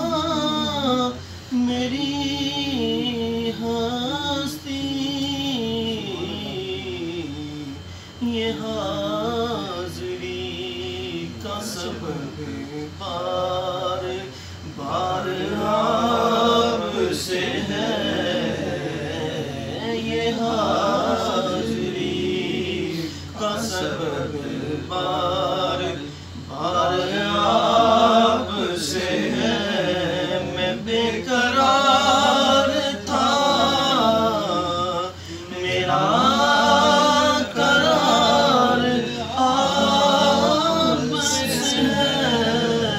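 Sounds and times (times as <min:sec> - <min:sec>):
man singing devotional poem: 0:00.0 - 0:42.9.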